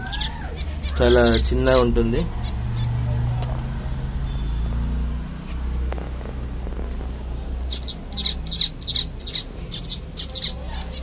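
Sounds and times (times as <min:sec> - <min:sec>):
finches chirping: 0:00.0 - 0:04.6, 0:07.1 - 0:11.0
low steady rumble: 0:05.3 - 0:11.0.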